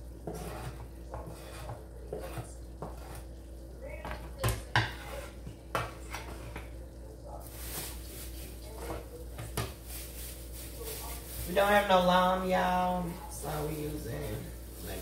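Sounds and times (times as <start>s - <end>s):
knife scraping cutting board: 0.2s - 3.3s, 4.8s - 5.4s.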